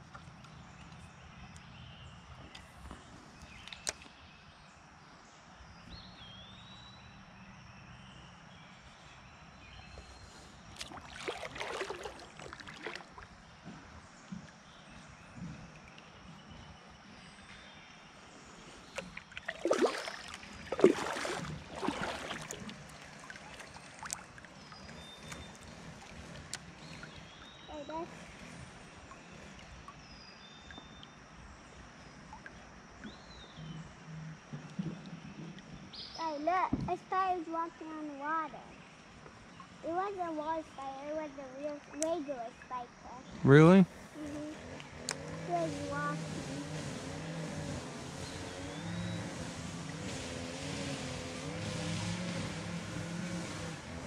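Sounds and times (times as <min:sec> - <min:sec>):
faint outdoor background: 0:00.0 - 0:54.0
faint river hiss: 0:00.0 - 0:54.0
paddle splashing water: 0:09.9 - 0:17.6, 0:18.3 - 0:33.2.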